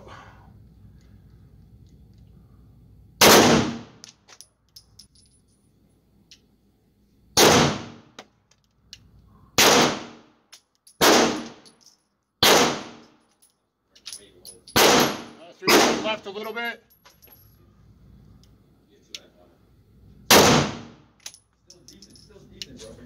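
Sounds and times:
pistol shots echoing: 3.2s - 4.0s, 7.4s - 8.1s, 9.6s - 10.2s, 11.0s - 11.6s, 12.4s - 13.0s, 14.8s - 16.2s, 20.3s - 21.0s
light clinks: 4.3s - 6.5s, 10.5s - 12.2s, 13.0s - 14.8s, 16.4s - 17.7s, 21.2s - 23.0s.

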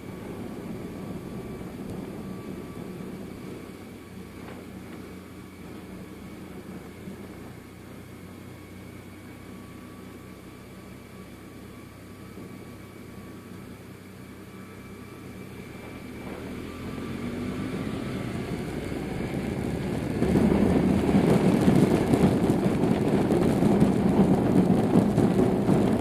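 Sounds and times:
wind on microphone: 0.0s - 8.2s, 15.2s - 26.0s
motorcycle engine running: 0.0s - 26.0s.

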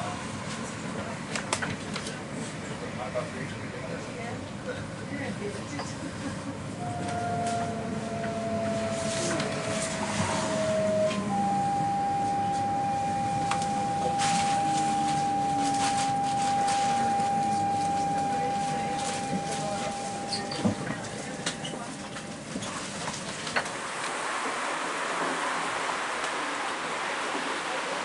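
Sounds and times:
train running rumble: 0.0s - 28.0s
train traction motors whining: 6.5s - 24.0s.

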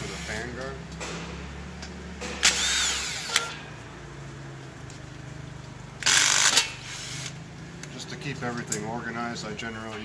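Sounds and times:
cordless drill running: 2.4s - 3.4s, 6.0s - 7.3s.

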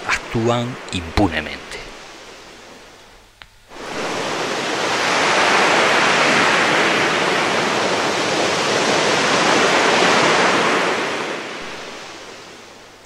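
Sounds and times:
sea surf on pebble beach: 0.0s - 2.8s, 3.7s - 13.0s.

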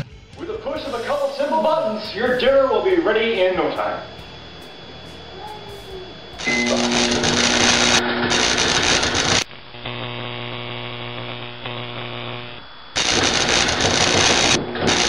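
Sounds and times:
microwave oven humming: 1.4s - 12.6s
loud crackling: 6.2s - 15.0s.

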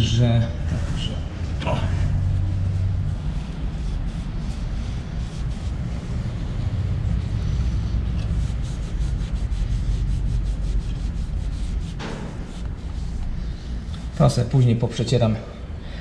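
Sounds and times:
cloth rag rubbing metal: 0.0s - 14.7s
steady low rumble: 0.0s - 16.0s
short scrape: 7.4s - 14.2s.

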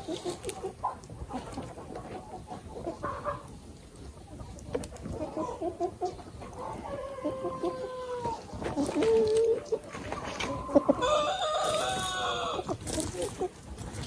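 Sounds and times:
chickens clucking: 0.0s - 14.0s
chicken drawn-out calls: 4.4s - 13.6s.

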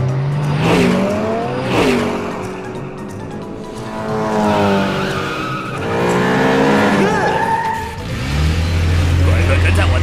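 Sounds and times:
background music: 0.0s - 10.0s
cartoon race car engine revving: 3.7s - 10.0s
tyre squeal: 4.9s - 8.2s.

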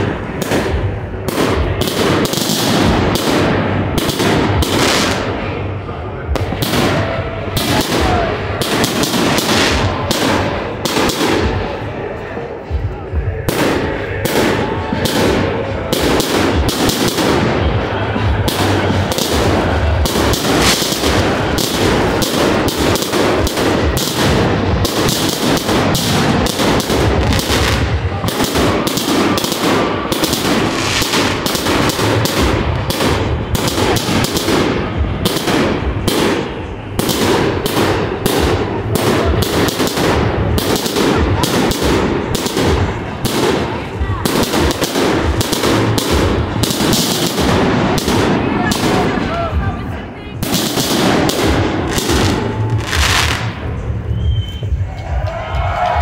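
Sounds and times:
fireworks shells bursting: 0.0s - 5.4s, 18.3s - 49.3s, 50.4s - 53.8s.

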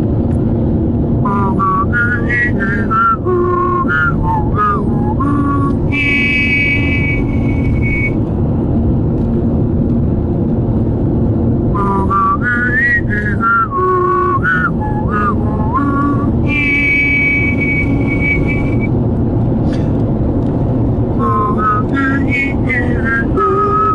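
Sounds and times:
road and tyre rumble: 0.0s - 23.9s
person whistling a tune: 1.3s - 8.2s, 11.8s - 18.9s, 21.2s - 23.9s.

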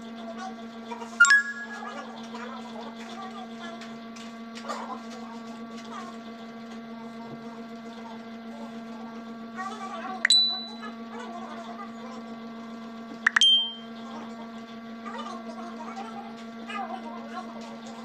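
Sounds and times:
short high ringing tone: 1.2s - 2.0s, 10.3s - 10.9s, 13.3s - 14.0s
sharp click: 13.3s - 13.8s.

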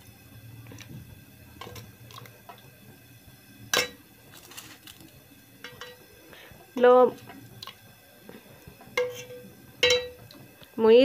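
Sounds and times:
metal ladle clinking on pot: 5.6s - 6.0s, 9.0s - 10.2s.

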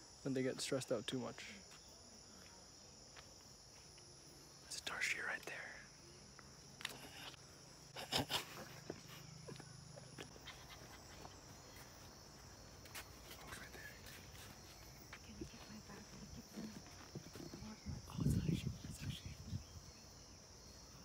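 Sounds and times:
high-pitched insect chorus: 0.0s - 21.0s
footsteps: 10.2s - 17.8s.

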